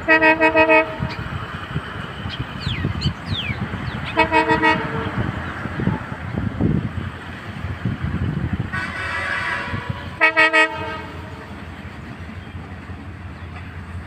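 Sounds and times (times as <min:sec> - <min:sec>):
locomotive horn blasts: 0:00.0 - 0:01.2, 0:04.0 - 0:05.4, 0:08.7 - 0:11.6
train rumbling: 0:00.0 - 0:14.0.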